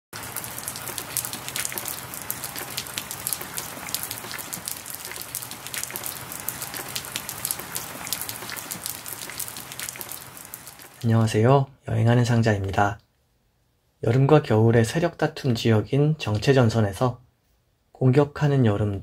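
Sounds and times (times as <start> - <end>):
rain on hard surface: 0.1 - 11.1.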